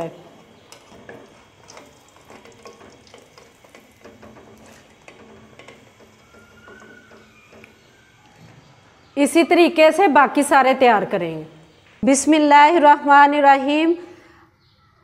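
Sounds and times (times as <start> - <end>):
frying sizzle with crackles: 0.0 - 8.8
utensils scraping and tapping pan: 0.5 - 8.0.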